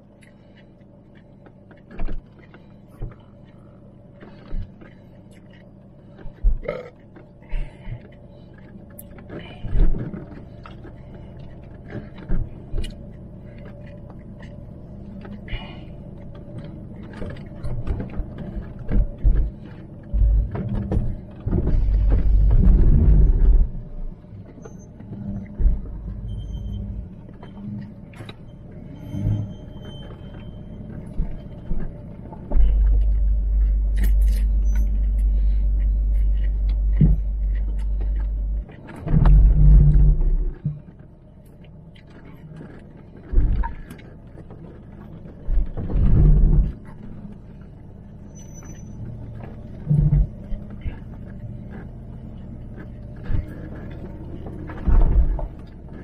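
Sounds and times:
vehicle rumble on rocky track: 0.0 - 56.0
heavy thumps and knocks: 17.8 - 23.8.

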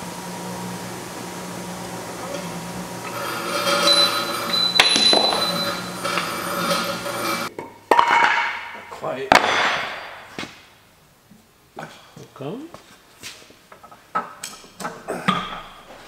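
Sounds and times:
steady hum: 0.0 - 7.5
metal parts clanking: 3.1 - 7.5
ringing metal strike: 3.5 - 7.5.

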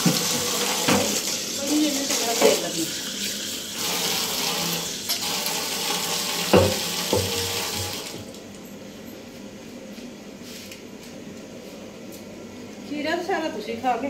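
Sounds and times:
tap running into sink: 0.0 - 1.4, 2.1 - 2.8, 3.8 - 8.2.

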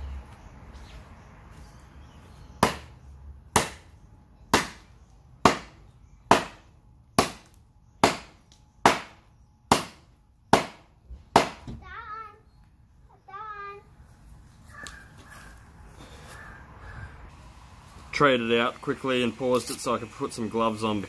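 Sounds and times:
knife chopping wood: 2.6 - 2.9, 3.5 - 3.8, 4.5 - 6.6, 7.2 - 11.8.

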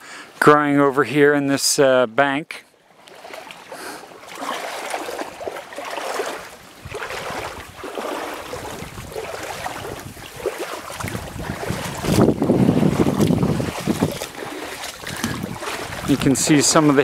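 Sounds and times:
rustling through dry brush: 5.9 - 17.0
wind buffeting microphone: 6.6 - 17.0.

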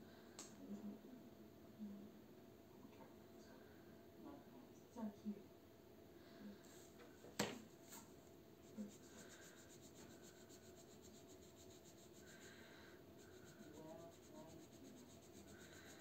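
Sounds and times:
marker scratching on paper: 8.6 - 16.0.

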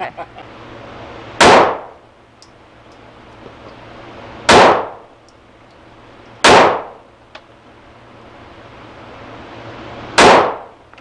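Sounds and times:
pistol shots echoing indoors: 6.4 - 7.0, 10.2 - 10.7.

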